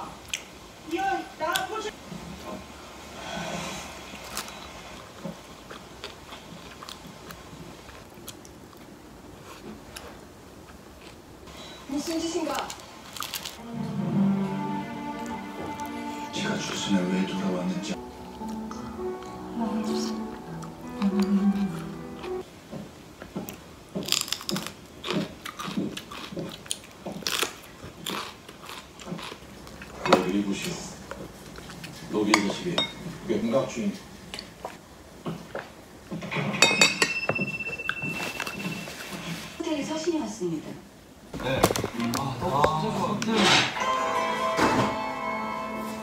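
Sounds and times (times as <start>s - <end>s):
chewing: 4.1s - 11.2s, 20.5s - 22.4s, 23.2s - 32.6s, 34.3s - 35.8s.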